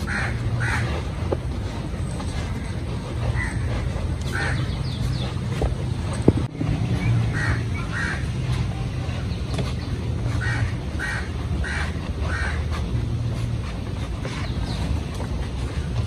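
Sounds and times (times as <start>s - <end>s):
bird calling: 0.0s - 1.2s, 2.2s - 13.0s
steady low rumble: 0.0s - 16.0s.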